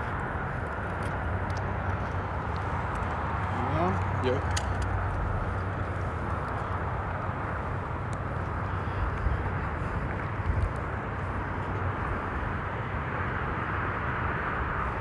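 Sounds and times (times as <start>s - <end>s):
low rumble with hiss: 0.0s - 15.0s.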